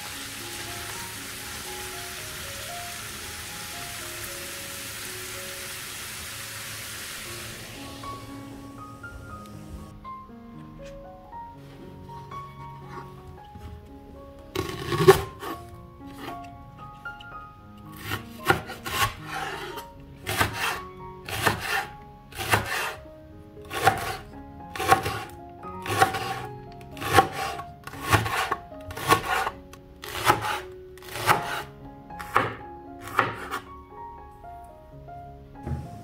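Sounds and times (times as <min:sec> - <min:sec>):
background music: 0:00.0 - 0:36.0
knife slicing on wooden board: 0:17.9 - 0:23.0, 0:23.7 - 0:24.2, 0:24.8 - 0:26.4, 0:27.0 - 0:29.5, 0:32.3 - 0:33.6.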